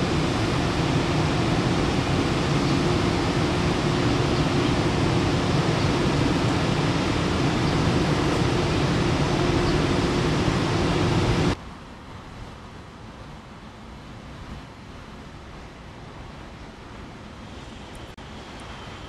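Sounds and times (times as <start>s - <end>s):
electric locomotives idling hum: 0.0s - 11.6s, 13.0s - 19.0s.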